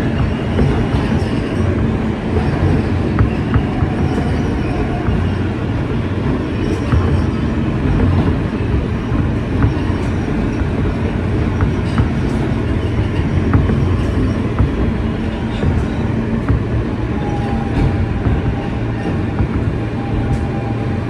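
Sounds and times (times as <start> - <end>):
subway train rumble: 0.0 - 21.0.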